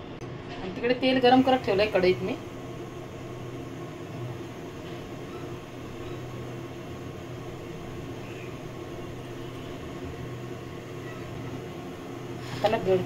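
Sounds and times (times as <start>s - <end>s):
low mechanical hum with hiss: 0.0s - 13.0s.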